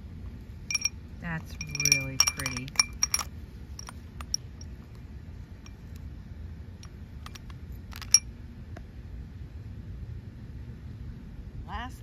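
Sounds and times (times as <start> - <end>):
beads clinking against glass bowl: 0.7 - 4.7.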